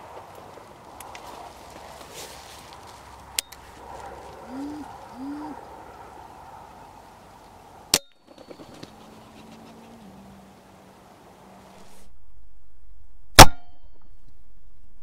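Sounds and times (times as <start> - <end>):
wood pigeon cooing: 3.6 - 7.0, 8.4 - 10.5.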